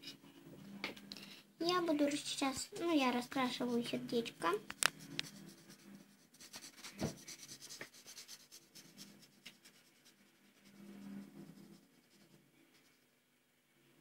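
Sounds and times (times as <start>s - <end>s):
marker scratching on paper: 4.7s - 12.9s
knock: 7.0s - 7.2s.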